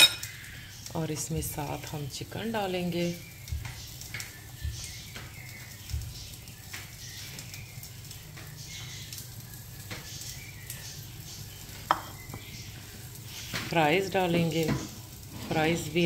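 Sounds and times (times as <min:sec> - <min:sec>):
soft taps and rustles: 0:03.5 - 0:07.6.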